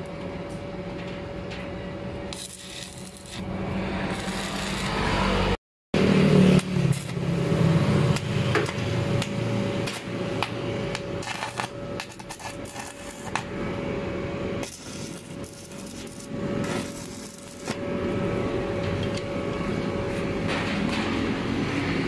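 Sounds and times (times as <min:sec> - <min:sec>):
welding arc crackling and popping: 0:02.3 - 0:05.5, 0:06.4 - 0:13.6, 0:14.6 - 0:17.8
steady hum: 0:06.6 - 0:21.5.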